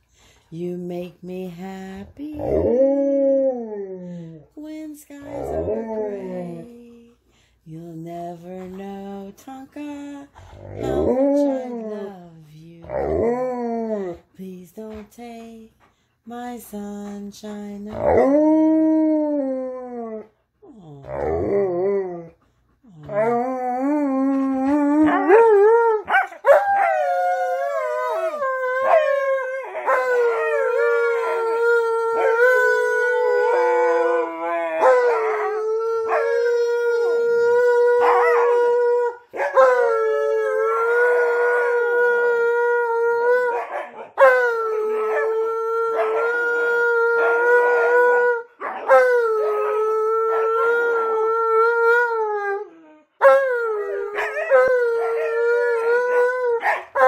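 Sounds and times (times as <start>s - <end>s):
dog howling: 23.0s - 57.0s.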